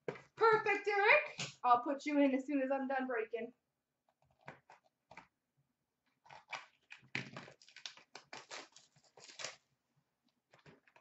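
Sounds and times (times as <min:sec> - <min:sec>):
foil wrapper tearing and crinkling: 0:06.2 - 0:09.7.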